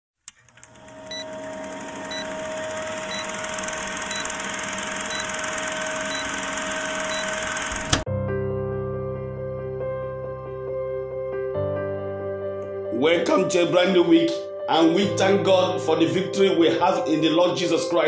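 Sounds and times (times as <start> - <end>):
film projector running: 0.3 - 8.0
soft music: 7.9 - 18.0.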